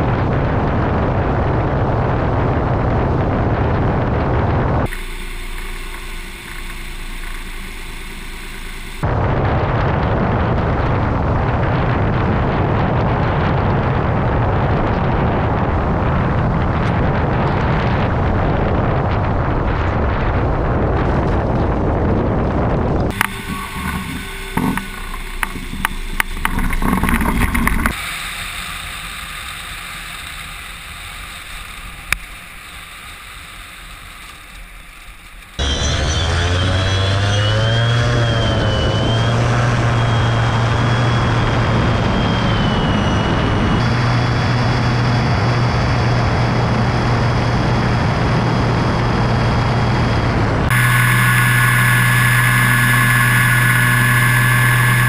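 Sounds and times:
rushing wind on microphone: 0:00.0 - 0:29.6, 0:35.5 - 0:55.0
electric motor and propeller tone: 0:04.8 - 0:09.2, 0:23.0 - 0:55.0
wheels rolling over grass: 0:22.5 - 0:28.0
sharp clicks and knocks: 0:23.0 - 0:28.0.

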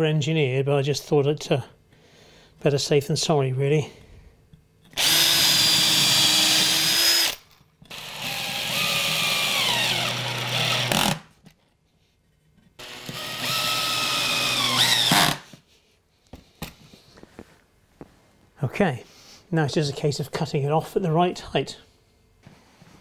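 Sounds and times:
cordless drill whining into wood: 0:05.0 - 0:11.2, 0:12.8 - 0:15.5.

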